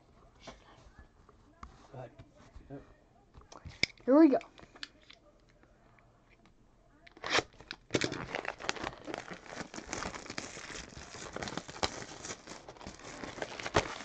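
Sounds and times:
plastic wrap crinkling and tearing: 0:07.1 - 0:14.0
box cutter slitting plastic wrap: 0:07.2 - 0:14.0.

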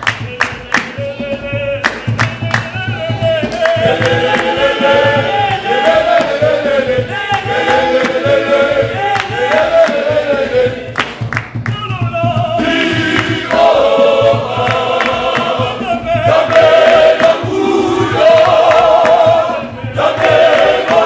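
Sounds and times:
hand claps: 0:00.0 - 0:01.2, 0:01.8 - 0:06.7, 0:07.3 - 0:11.9, 0:14.6 - 0:15.6, 0:16.3 - 0:17.5, 0:18.2 - 0:21.0
men's choir singing in harmony: 0:00.0 - 0:21.0.

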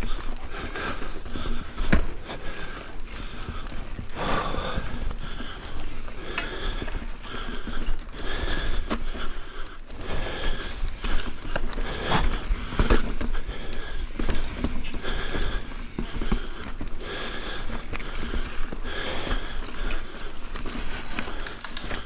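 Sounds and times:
bike rattling on rough trail: 0:00.0 - 0:22.0
person breathing hard: 0:00.0 - 0:22.0
bike knocking on rocks: 0:01.6 - 0:02.4, 0:11.1 - 0:16.8.

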